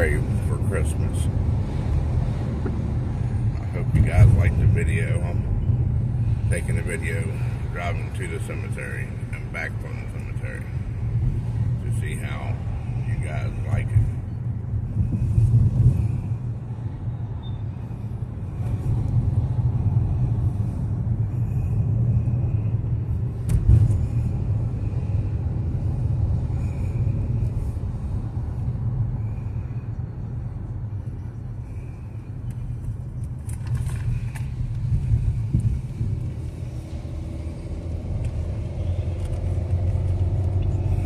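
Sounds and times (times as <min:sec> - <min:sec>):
car road and engine rumble: 0:00.0 - 0:41.0.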